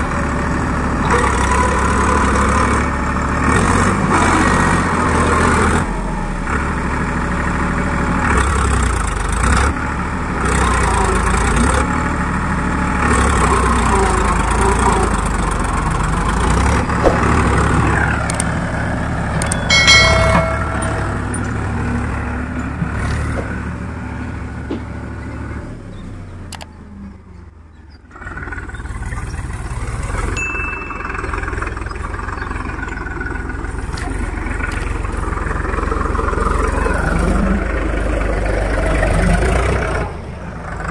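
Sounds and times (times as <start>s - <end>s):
tractor diesel engine running: 0.0s - 40.9s
short ringing chime: 19.4s - 21.8s, 30.4s - 31.8s.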